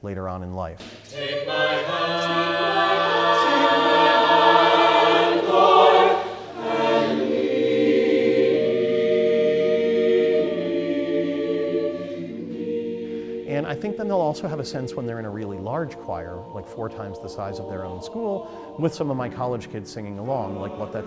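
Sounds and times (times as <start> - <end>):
mixed choir singing chords: 1.1 - 21.0.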